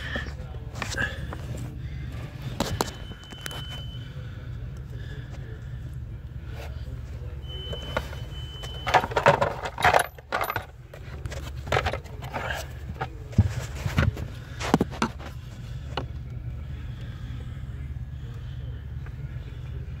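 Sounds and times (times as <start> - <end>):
steady low hum: 0.0 - 20.0
plastic parts clattering: 7.8 - 15.3.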